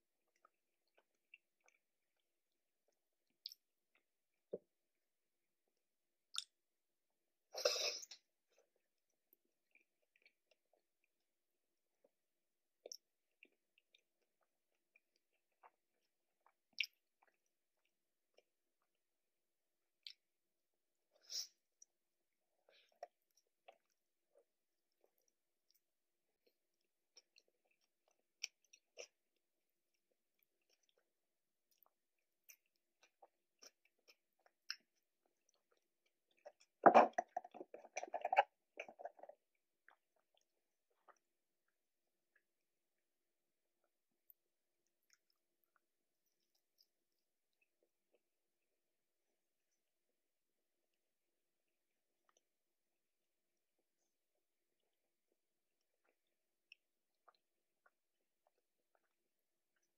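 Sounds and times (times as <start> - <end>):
chewing food: 0.2 - 4.7, 7.6 - 11.2, 12.8 - 19.0, 22.6 - 42.5, 43.8 - 48.3, 55.8 - 59.9
wet mouth clicks: 36.4 - 39.3.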